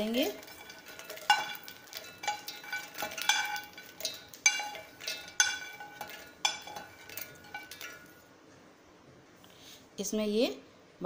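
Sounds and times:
pan knocking against steel jar: 0.0 - 8.2.

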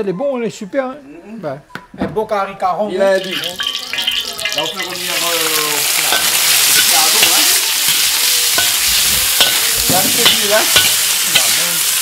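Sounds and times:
meat sizzling in a wok: 3.1 - 12.0
metal spatula scraping wok: 3.2 - 12.0.

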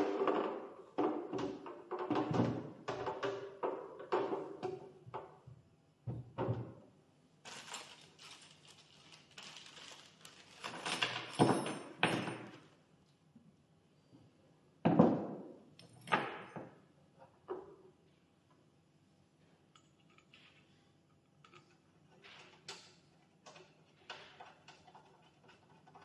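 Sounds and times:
plastic bag crinkling: 7.4 - 10.9.

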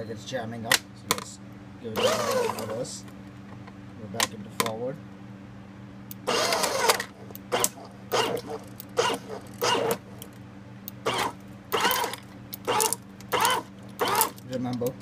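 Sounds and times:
shredder crunching plastic parts: 2.0 - 2.8, 6.3 - 10.0, 11.1 - 14.6.

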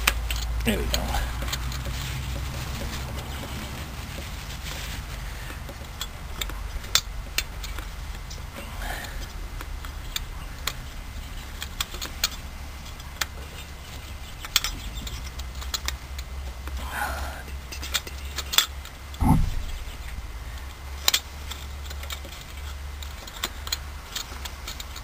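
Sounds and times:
small metallic clicks: 0.0 - 2.0, 17.7 - 25.0
low hum: 19.2 - 20.9.

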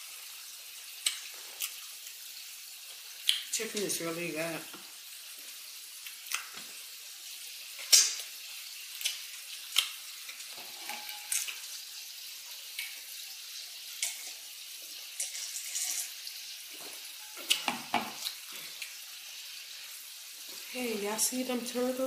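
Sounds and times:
person chewing food: 0.9 - 2.2, 5.4 - 6.8, 7.8 - 11.7, 16.7 - 19.0.

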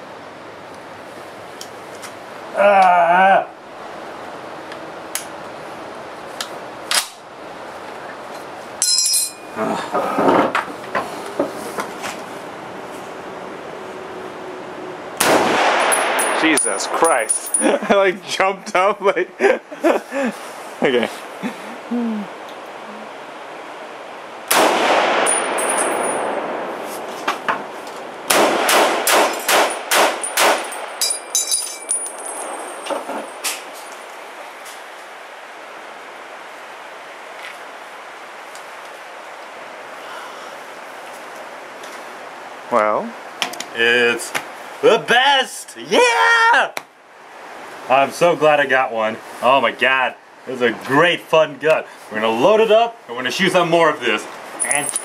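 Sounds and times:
bright metallic ringing: 8.8 - 9.6
rifle shots echoing indoors: 15.2 - 16.2, 24.5 - 25.6, 28.3 - 30.7.

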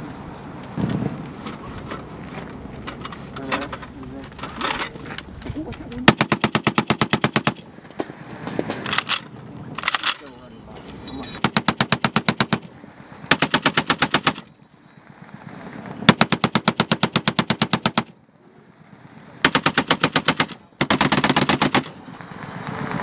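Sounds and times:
heavy machine gun bursts: 6.0 - 15.0, 15.8 - 23.0.

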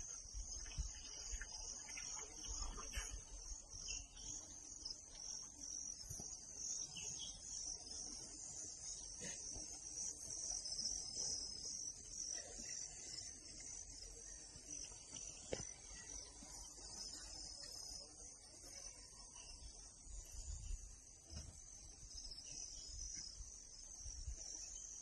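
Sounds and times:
insects chirring: 0.0 - 25.0.

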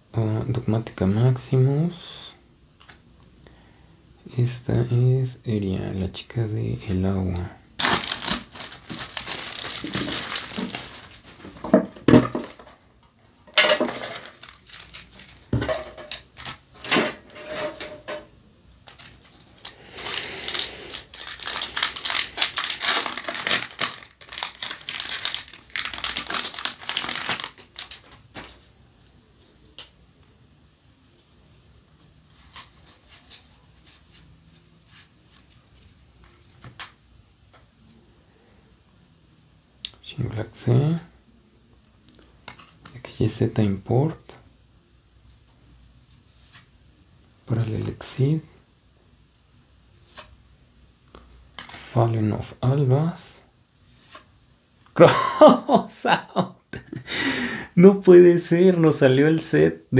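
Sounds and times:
cards being handled: 7.8 - 11.6
foil pack crinkling and tearing: 7.8 - 11.6, 14.0 - 16.6, 18.9 - 28.5, 51.6 - 52.0
plastic shrink wrap crinkling: 7.8 - 12.8, 13.8 - 16.7, 18.8 - 28.6, 51.5 - 52.0.

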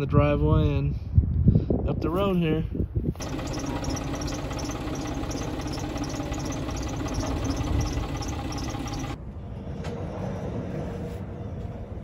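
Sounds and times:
diesel engine idling: 3.2 - 9.2
light high ticking: 3.2 - 9.2.

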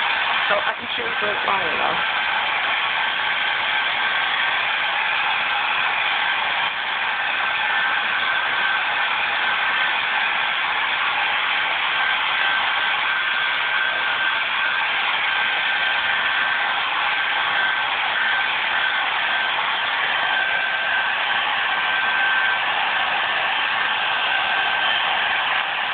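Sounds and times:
hair dryer blowing: 0.0 - 25.9.

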